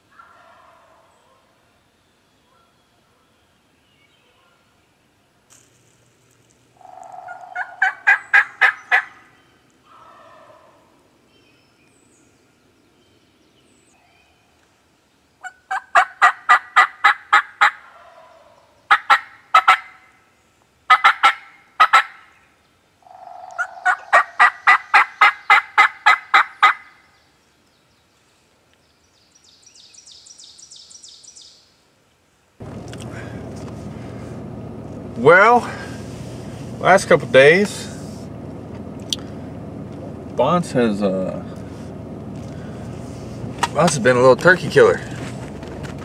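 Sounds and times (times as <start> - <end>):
turkey yelping: 0.2 - 1.4, 6.8 - 9.3, 9.9 - 10.9, 15.4 - 20.1, 20.9 - 22.3, 23.1 - 26.9.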